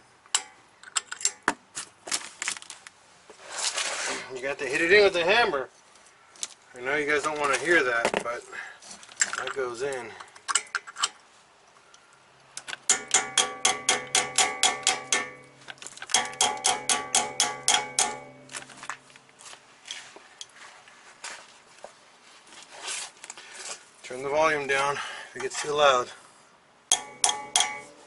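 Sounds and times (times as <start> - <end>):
ringing metal-on-metal blows: 12.9 - 18.9, 26.9 - 28.0.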